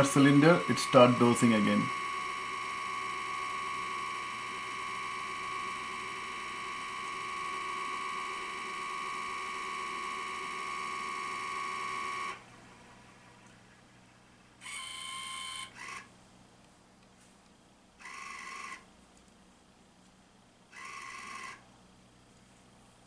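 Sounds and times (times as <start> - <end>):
electric motor whine: 0.0 - 13.6, 14.6 - 16.1, 20.8 - 21.6.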